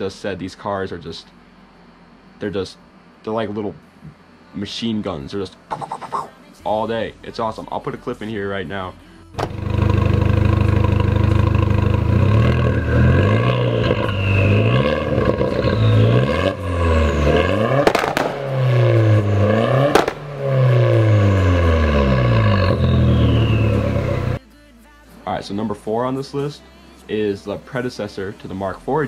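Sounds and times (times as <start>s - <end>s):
car engine revving: 9.4s - 24.4s
exhaust pops: 9.4s - 24.4s.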